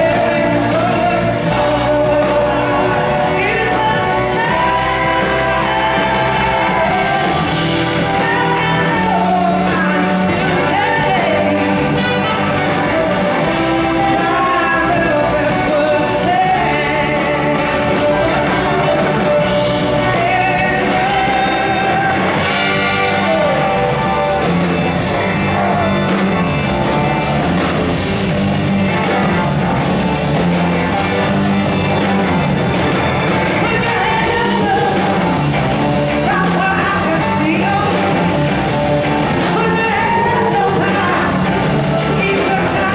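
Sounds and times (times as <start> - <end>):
woman singing: 0.0 - 23.7, 33.6 - 35.2, 36.2 - 38.2, 39.4 - 42.9
live rock band playing: 0.0 - 42.9.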